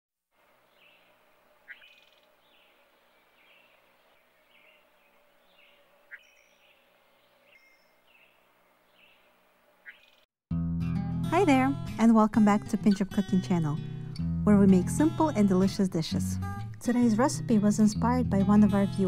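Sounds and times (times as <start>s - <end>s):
faint birds chirping: 0.4s - 10.3s.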